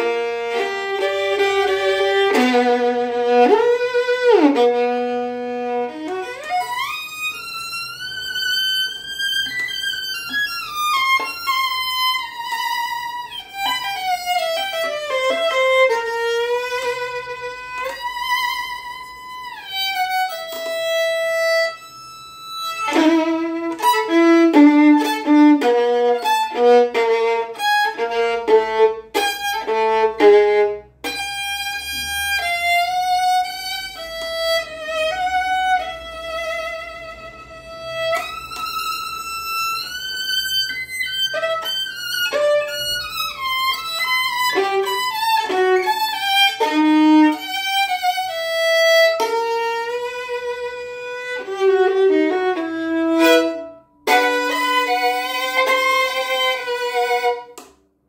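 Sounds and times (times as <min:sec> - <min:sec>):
solo violin bowed: 0:00.0 - 0:57.8.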